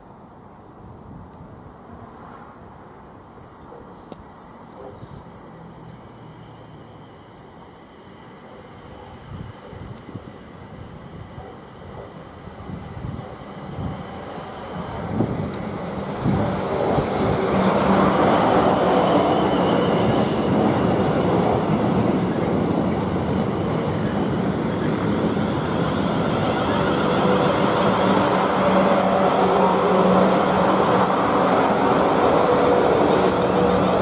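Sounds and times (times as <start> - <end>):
train wheels rumbling: 12.7 - 34.0.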